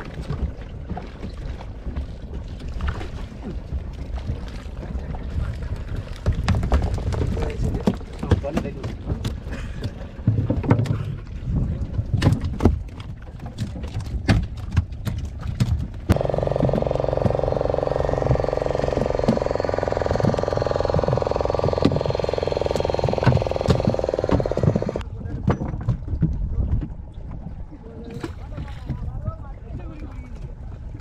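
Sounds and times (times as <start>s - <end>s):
knocks and clicks on wooden boat: 0.0s - 27.5s
small boat engine running: 14.8s - 25.1s.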